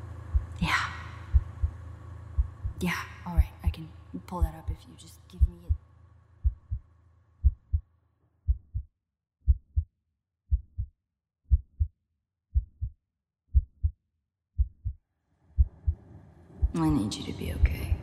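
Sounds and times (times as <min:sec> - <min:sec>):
heartbeat thumps: 0:00.3 - 0:01.8, 0:02.4 - 0:03.8, 0:04.4 - 0:04.8, 0:05.4 - 0:05.8, 0:06.4 - 0:07.9, 0:08.5 - 0:09.9, 0:10.5 - 0:10.9, 0:11.5 - 0:14.0, 0:14.6 - 0:15.0, 0:15.6 - 0:16.0, 0:16.6 - 0:17.0, 0:17.6 - 0:18.0.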